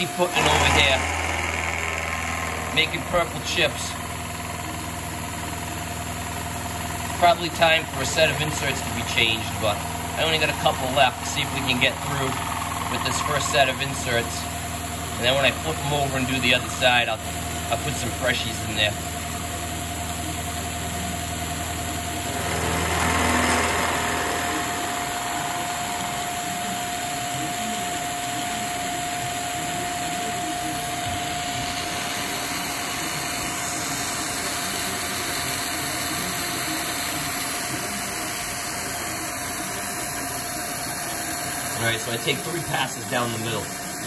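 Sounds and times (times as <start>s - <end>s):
low hum: 0.0s - 15.2s, 19.2s - 34.4s
milling machine whine: 0.0s - 44.0s.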